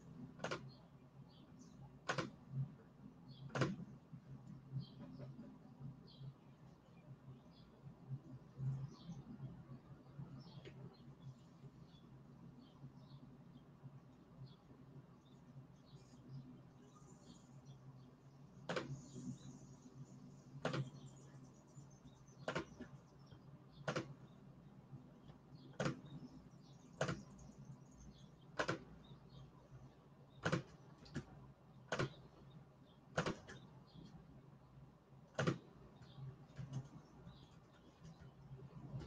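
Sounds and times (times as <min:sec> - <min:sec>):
low steady hum: 0:00.0 - 0:39.0
computer mouse clicks: 0:00.3 - 0:02.7, 0:03.3 - 0:05.5, 0:18.6 - 0:19.5, 0:20.5 - 0:21.1, 0:22.4 - 0:23.0, 0:23.7 - 0:24.4, 0:25.2 - 0:29.4, 0:30.3 - 0:32.5, 0:33.2 - 0:34.2, 0:35.3 - 0:39.0.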